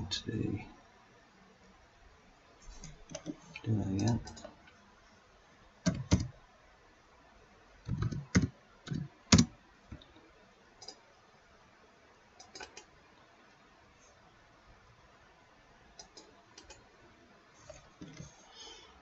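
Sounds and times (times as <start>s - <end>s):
computer mouse and keyboard clicks: 2.7s - 4.6s, 5.8s - 6.3s, 7.9s - 10.1s, 10.8s - 11.0s, 12.4s - 12.9s, 16.0s - 16.9s, 17.6s - 18.4s.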